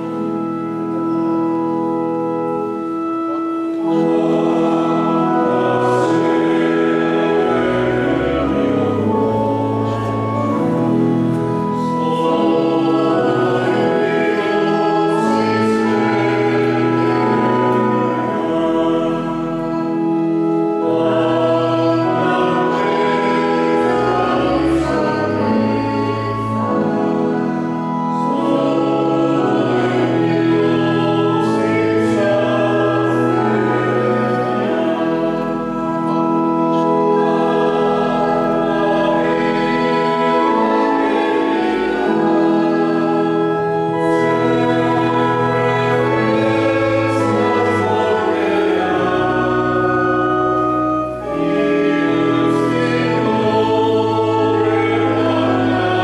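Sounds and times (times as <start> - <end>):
church choir singing a hymn: 0.0 - 56.0
organ chords: 0.0 - 56.0.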